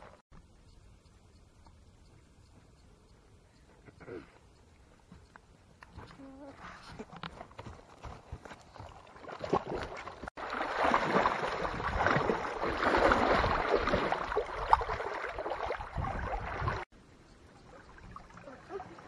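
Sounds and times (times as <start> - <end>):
water splashing and sloshing: 8.0 - 19.0.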